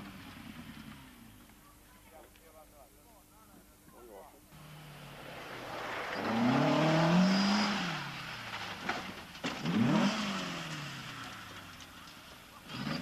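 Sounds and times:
car engine revving hard: 0:04.6 - 0:08.6, 0:09.6 - 0:11.4
car crash impacts: 0:07.5 - 0:09.9.

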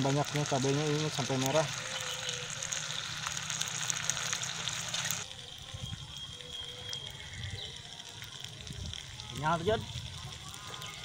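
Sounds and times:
broth sizzling in a pan: 0:00.0 - 0:11.0.

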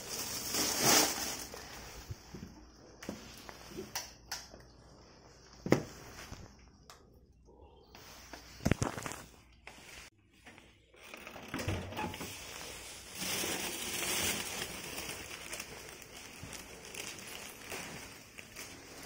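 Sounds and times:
plastic bag rustling: 0:00.0 - 0:02.5, 0:12.1 - 0:19.0.

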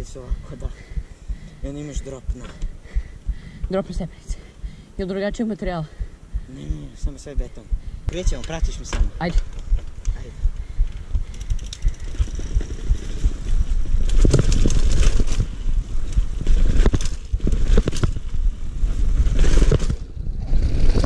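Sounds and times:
heavy low rumble: 0:00.0 - 0:21.0
bike knocking and rattling on steps: 0:10.9 - 0:20.1.

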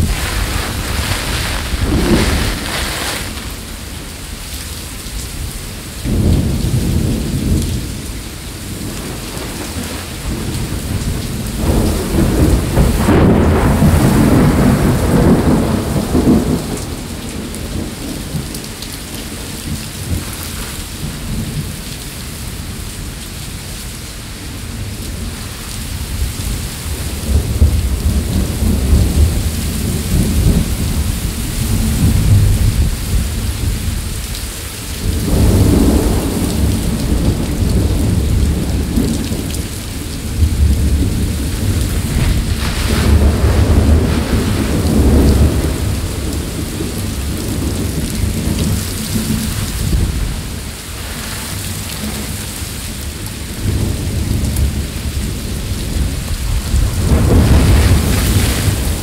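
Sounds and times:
thunder rumbling: 0:00.0 - 0:21.8, 0:34.9 - 0:59.0
heavy rain: 0:00.0 - 0:59.0.

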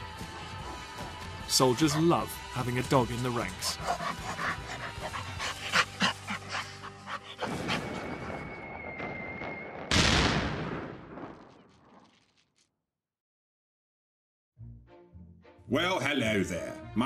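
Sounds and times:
dog panting: 0:00.2 - 0:08.0.

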